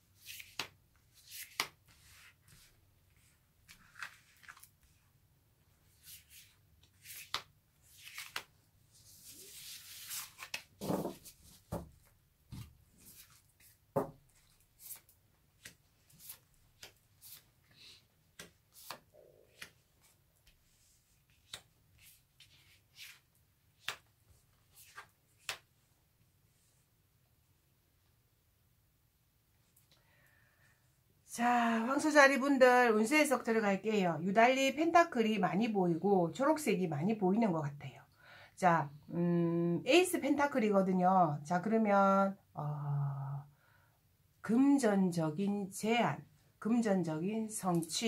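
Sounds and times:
cards shuffled with rustling: 0:00.2 - 0:05.0, 0:05.9 - 0:25.8.

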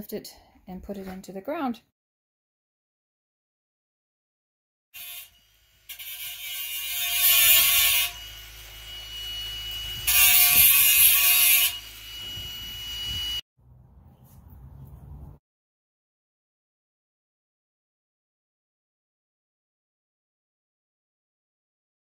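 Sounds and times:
angle grinder cutting steel: 0:05.0 - 0:13.4
grinder motor whining: 0:07.1 - 0:13.4.

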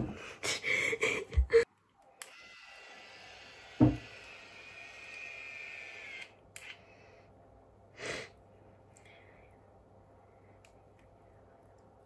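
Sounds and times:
curling iron motor whirring: 0:02.1 - 0:06.8.

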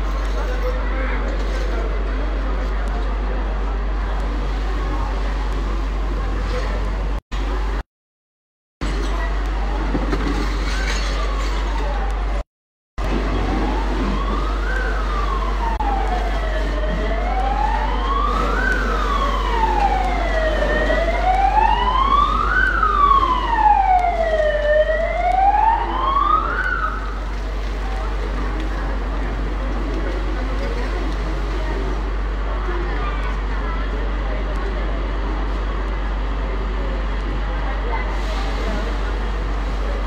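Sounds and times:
emergency siren wailing: 0:13.0 - 0:27.6.

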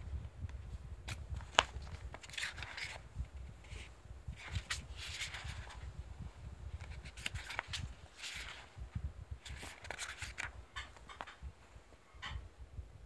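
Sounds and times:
paper pages turning: 0:01.0 - 0:03.0, 0:03.6 - 0:05.9, 0:06.7 - 0:08.7, 0:09.4 - 0:11.4.

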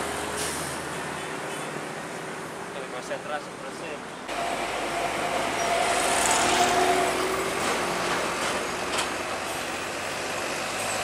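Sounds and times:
motorcycle passing: 0:05.5 - 0:07.6.

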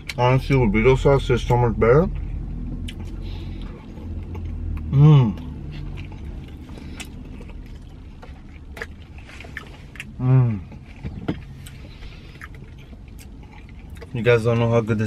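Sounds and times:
steady low rumble: 0:00.0 - 0:15.0
man chewing food: 0:02.0 - 0:14.7
man humming: 0:04.8 - 0:05.5.

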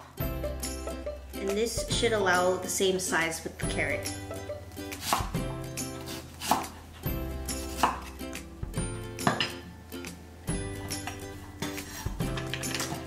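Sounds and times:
soft background music: 0:00.0 - 0:13.0
knife chopping on wooden board: 0:05.0 - 0:05.4, 0:06.0 - 0:06.8, 0:07.6 - 0:08.2.

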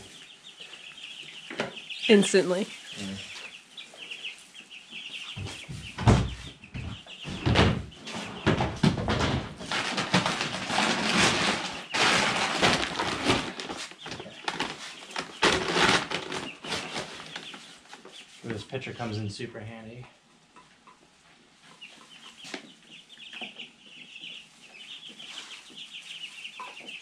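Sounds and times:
chicks peeping: 0:00.0 - 0:27.0
feed rustling in paper bag: 0:09.7 - 0:17.6.

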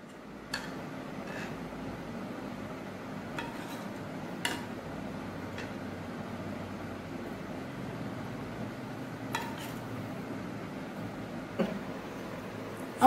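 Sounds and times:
steady low hum: 0:00.0 - 0:13.0
metal spoon clinking on pan: 0:00.5 - 0:01.4, 0:09.3 - 0:09.8.

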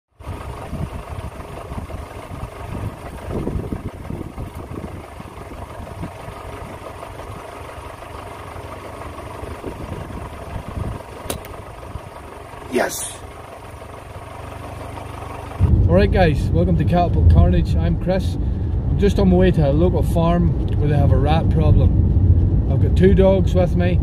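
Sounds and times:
low engine-like rumble: 0:00.2 - 0:24.0
sharp click: 0:11.2 - 0:11.6.

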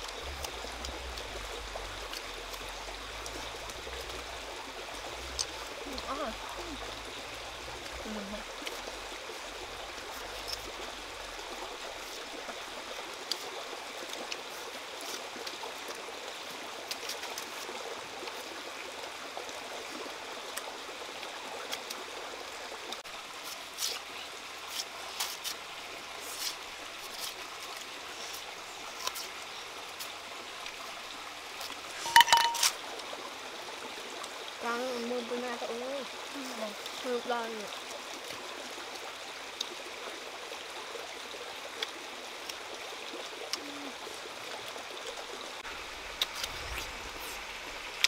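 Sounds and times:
flowing stream: 0:00.0 - 0:48.0
knife peeling tubers: 0:23.5 - 0:24.0, 0:26.2 - 0:29.4.

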